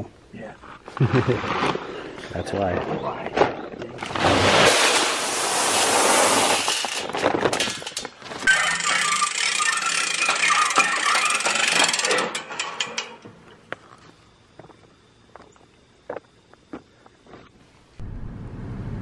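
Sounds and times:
corn kernels pouring into metal barrel: 4.0s - 7.7s.

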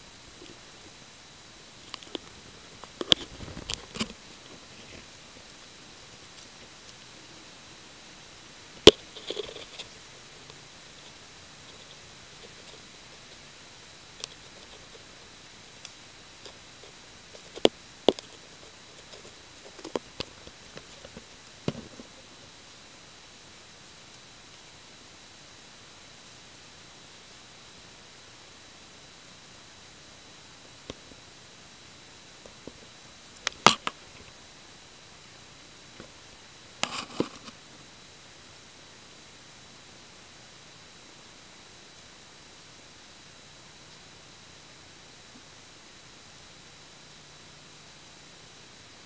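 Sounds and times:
faint steady hiss: 0.0s - 49.0s
sharp crackling rustles: 1.6s - 7.2s.

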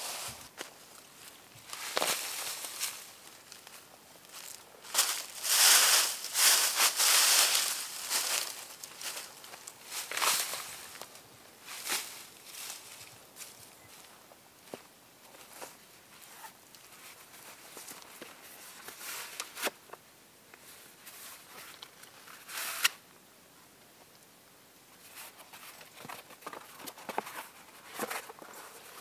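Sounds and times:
rustling of gear: 25.0s - 29.0s.

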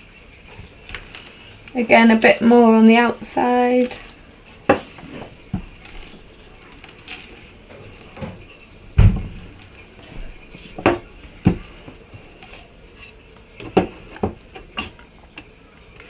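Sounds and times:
rolling pin rolling over clay: 0.5s - 15.0s
wooden knocks: 4.7s - 6.2s, 6.8s - 12.5s.

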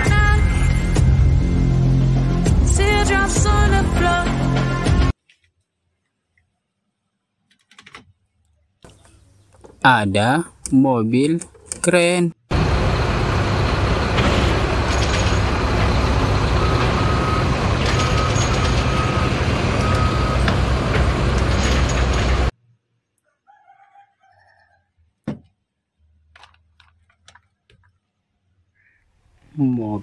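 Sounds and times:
crane engine running: 12.5s - 22.5s.

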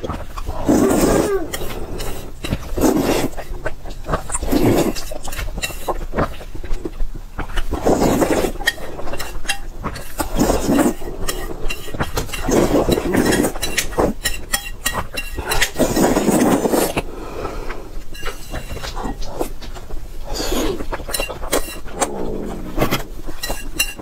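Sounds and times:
person slurping noodles: 0.4s - 6.0s, 7.6s - 9.0s, 10.0s - 14.2s, 15.4s - 19.6s, 20.2s - 24.0s.

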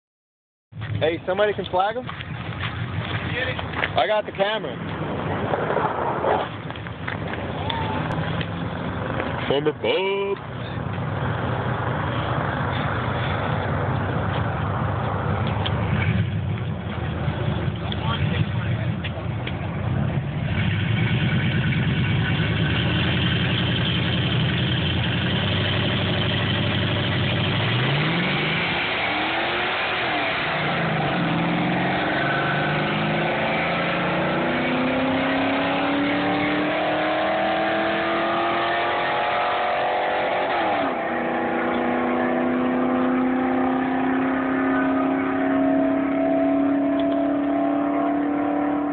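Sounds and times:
car engines revving: 0.8s - 48.9s
cars accelerating through gears: 25.2s - 48.9s.

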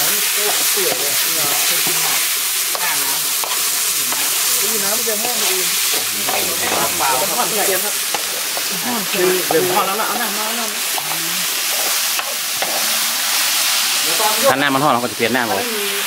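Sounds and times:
meat sizzling in a wok: 0.0s - 16.0s
metal spatula scraping: 0.5s - 8.7s, 11.0s - 13.8s.

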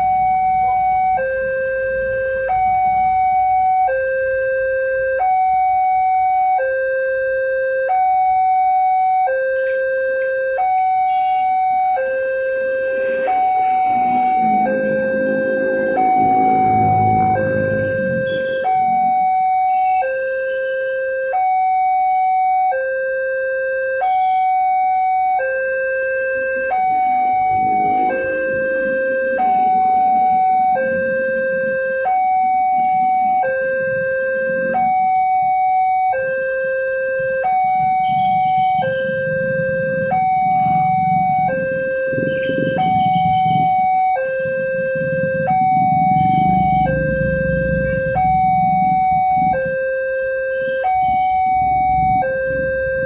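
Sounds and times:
two-tone crossing alarm: 0.0s - 53.0s
motorcycle and truck engines idling: 9.6s - 19.5s, 26.4s - 35.3s, 36.1s - 50.0s, 51.0s - 53.0s.

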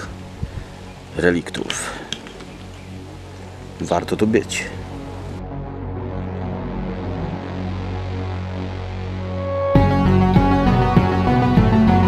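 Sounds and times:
low electronic drone: 2.5s - 11.9s.

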